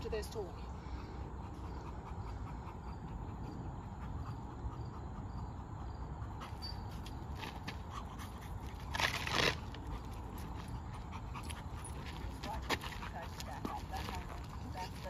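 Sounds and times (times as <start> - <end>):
insects chirping faintly: 0.0 - 8.9.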